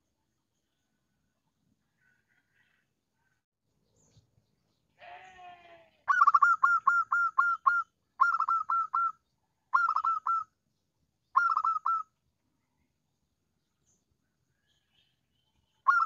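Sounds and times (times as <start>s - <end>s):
dove cooing: 6.1s - 9.1s, 9.8s - 10.4s, 11.4s - 12.0s.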